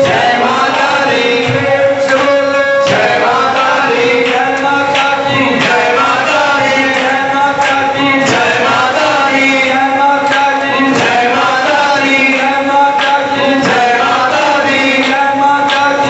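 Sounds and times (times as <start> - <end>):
instrumental backing: 0.0 - 9.1
voices chanting devotional song: 0.0 - 16.0
steady held note: 1.5 - 4.5.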